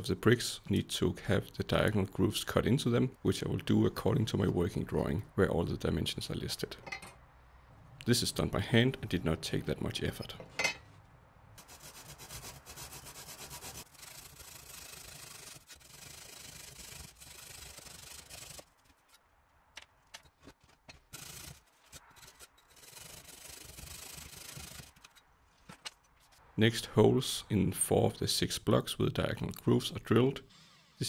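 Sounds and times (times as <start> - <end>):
handsaw rasping through brick: 11.6 - 19.0, 20.9 - 25.1.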